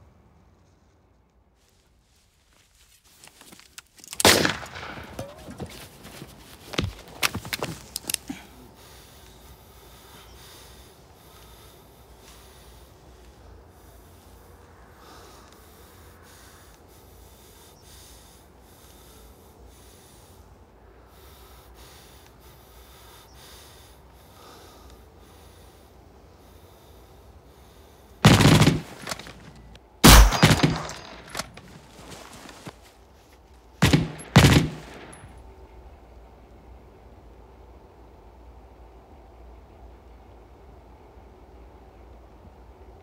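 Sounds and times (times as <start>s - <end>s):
handgun shots ringing out: 4.2s - 5.6s, 28.2s - 31.5s, 33.8s - 35.2s.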